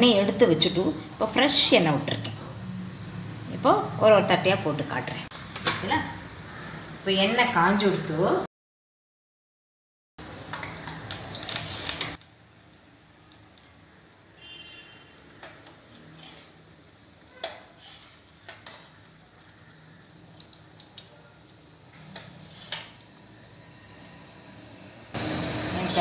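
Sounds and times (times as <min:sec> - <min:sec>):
dough sizzling in hot oil: 0:10.2 - 0:14.6, 0:21.6 - 0:26.0.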